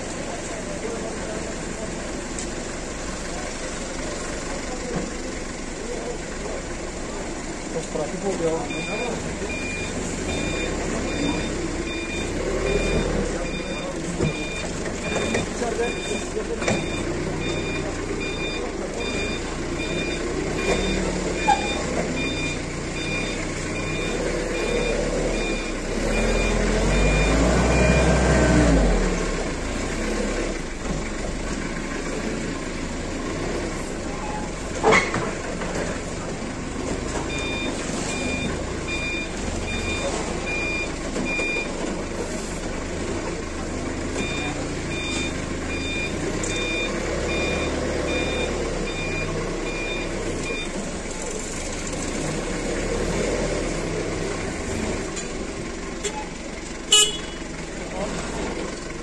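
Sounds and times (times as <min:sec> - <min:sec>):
forklift engine running: 0:00.0 - 0:59.0
reversing alarm beeping: 0:08.6 - 0:28.3, 0:37.3 - 0:41.8, 0:44.2 - 0:50.8.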